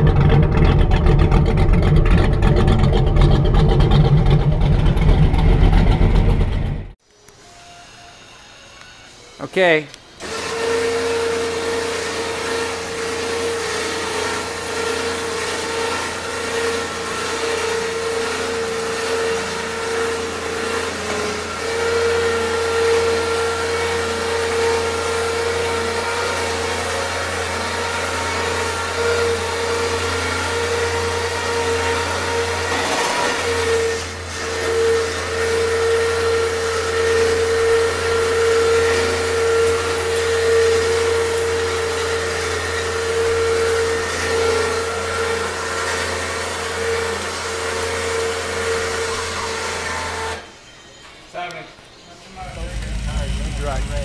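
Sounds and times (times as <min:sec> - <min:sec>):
motor whining: 0:52.3 - 0:54.0.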